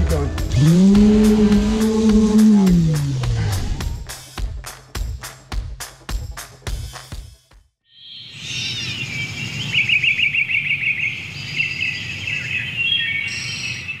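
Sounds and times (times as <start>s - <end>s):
birds chirping and twittering: 7.9s - 14.0s.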